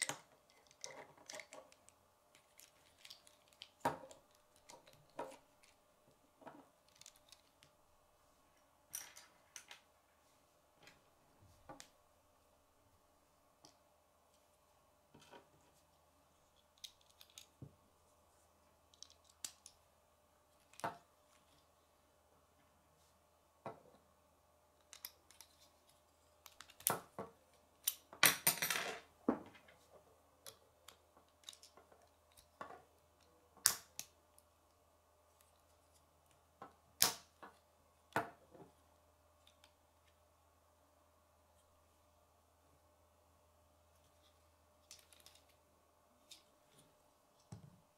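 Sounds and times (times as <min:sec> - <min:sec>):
plastic pieces clicking and snapping: 0:06.8 - 0:07.7.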